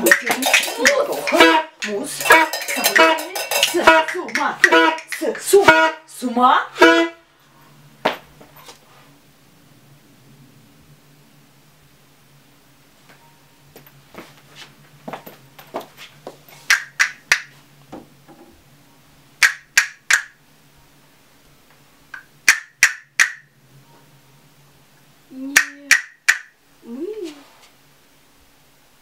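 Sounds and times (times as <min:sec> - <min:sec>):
person humming: 0:25.3 - 0:26.0, 0:26.8 - 0:27.6.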